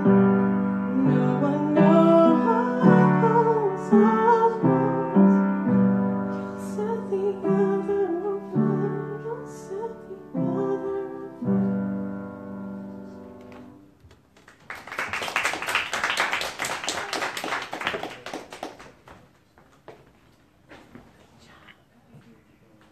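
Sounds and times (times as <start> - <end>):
upright piano chords: 0.0 - 14.4
audience applauding: 14.4 - 19.2.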